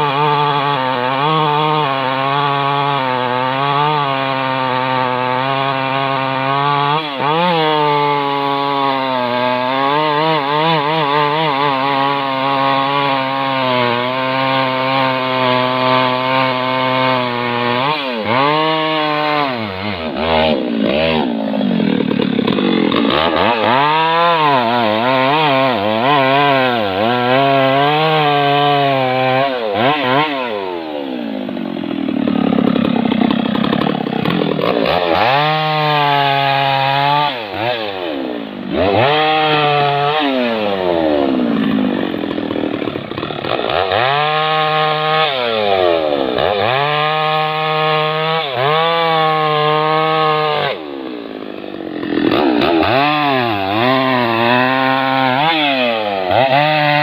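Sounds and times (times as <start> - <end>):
chainsaw cutting log: 0.0 - 57.0.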